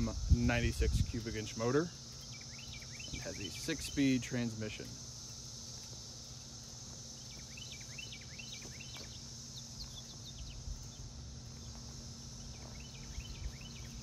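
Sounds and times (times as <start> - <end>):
high-pitched insect drone: 0.0 - 14.0
bird chirping: 2.0 - 4.2, 6.2 - 14.0.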